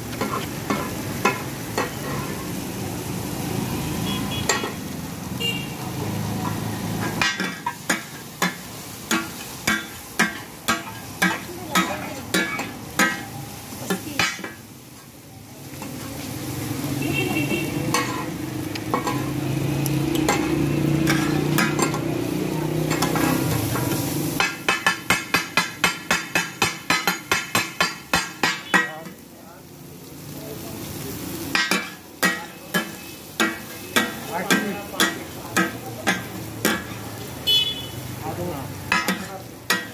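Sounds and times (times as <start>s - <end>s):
frying sizzle: 0.0s - 39.9s
metal spatulas clanging on griddle: 0.1s - 2.5s, 4.4s - 4.9s, 6.3s - 14.7s, 17.5s - 19.4s, 20.0s - 29.3s, 31.4s - 37.2s, 38.3s - 39.9s.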